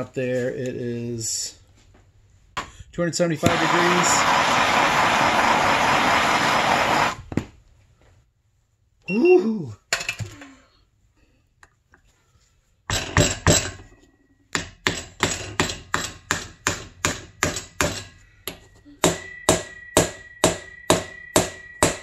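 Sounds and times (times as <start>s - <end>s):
hammer striking metal: 14.5s - 22.0s.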